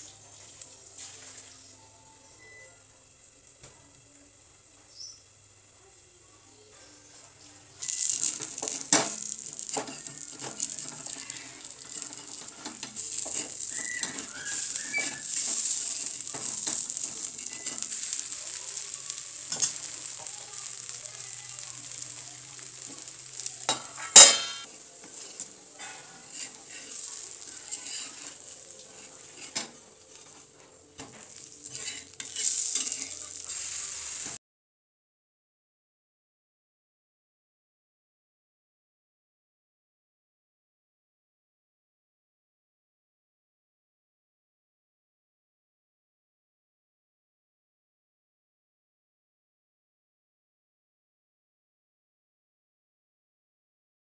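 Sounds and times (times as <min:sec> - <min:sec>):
batter sizzling on a griddle: 0:00.0 - 0:34.4
spatula scraping and tapping pan: 0:07.8 - 0:34.4
loud metallic clank: 0:23.8 - 0:24.6.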